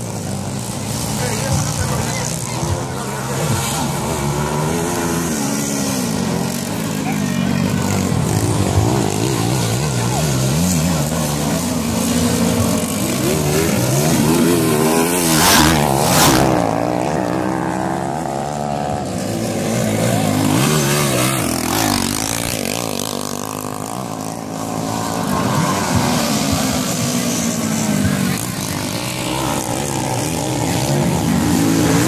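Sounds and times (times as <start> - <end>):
dirt bike engines revving: 0.0 - 32.0.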